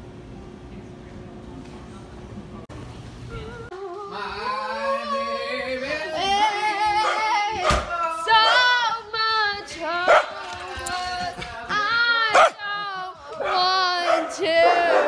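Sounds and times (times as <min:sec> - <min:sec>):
girls singing: 0:03.4 - 0:15.0.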